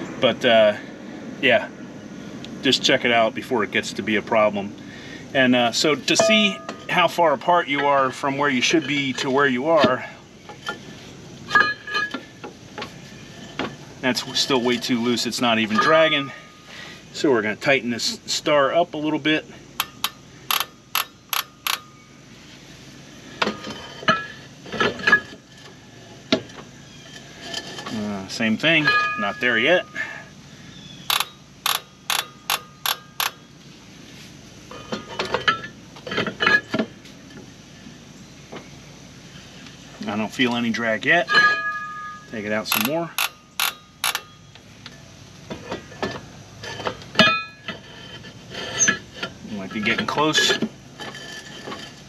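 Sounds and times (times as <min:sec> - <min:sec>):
brake drum clanking and scraping: 0:05.4 - 0:52.0
brake adjuster wheel clicking: 0:31.0 - 0:33.4, 0:42.6 - 0:45.0
light scraping and taps: 0:44.8 - 0:52.0.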